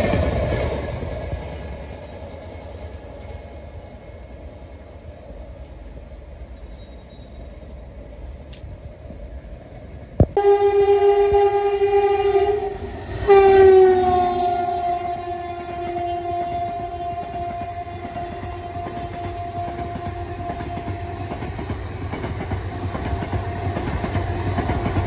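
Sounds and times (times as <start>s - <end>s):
distant train rumbling: 0.0s - 25.0s
two-tone train horn blasts: 10.4s - 21.4s.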